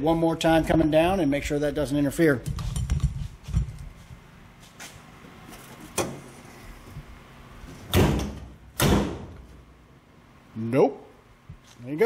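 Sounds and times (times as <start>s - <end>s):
trunk lid thudding shut: 7.8s - 9.5s.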